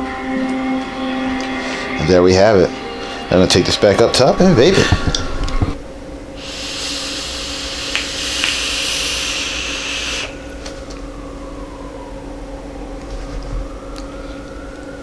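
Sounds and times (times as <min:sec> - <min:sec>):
breathy exhale: 0:06.4 - 0:10.5
vaping draw hiss: 0:06.4 - 0:10.8.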